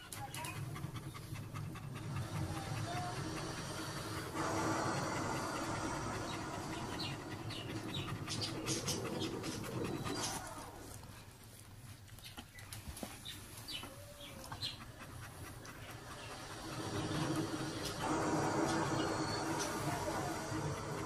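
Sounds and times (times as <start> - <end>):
dog panting: 0.0 - 21.0.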